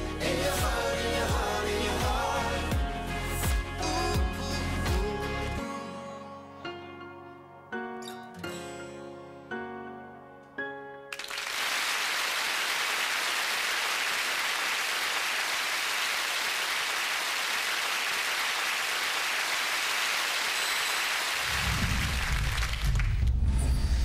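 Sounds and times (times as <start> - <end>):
audience applauding: 11.1 - 23.3.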